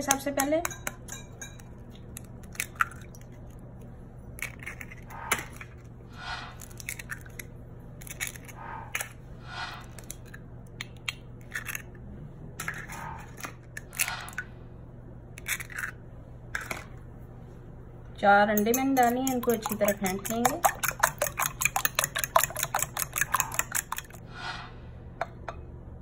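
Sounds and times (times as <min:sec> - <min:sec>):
fork beating eggs in glass bowl: 0:00.0 - 0:03.3, 0:18.5 - 0:24.2.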